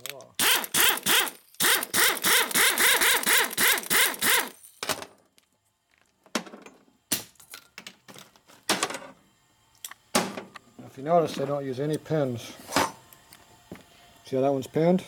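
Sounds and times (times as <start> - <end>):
air tool running in pulses: 0.4 - 4.6.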